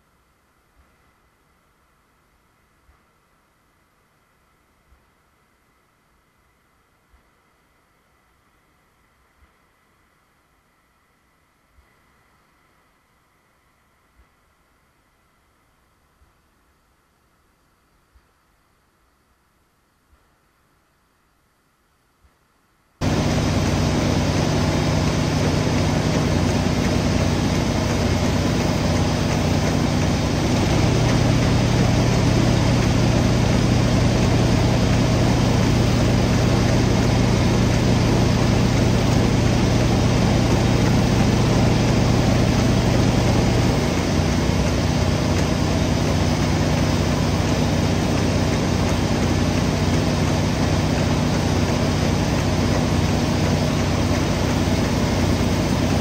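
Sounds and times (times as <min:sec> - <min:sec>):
deeper hum: 0:23.0 - 0:56.0
engine running steadily: 0:23.0 - 0:56.0.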